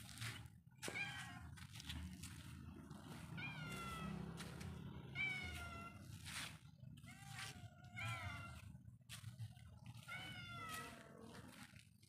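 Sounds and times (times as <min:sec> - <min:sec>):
cat meowing: 0:00.8 - 0:01.6, 0:03.3 - 0:04.4, 0:05.1 - 0:06.1, 0:07.0 - 0:08.7, 0:10.0 - 0:11.4.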